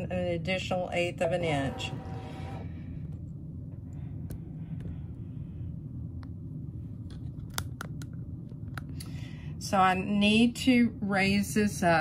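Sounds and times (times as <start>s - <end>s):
embroidery machine humming: 0.7s - 3.8s.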